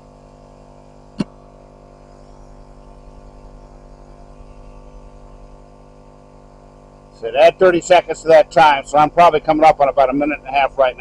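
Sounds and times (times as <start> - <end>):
air compressor humming: 0.0 - 11.0.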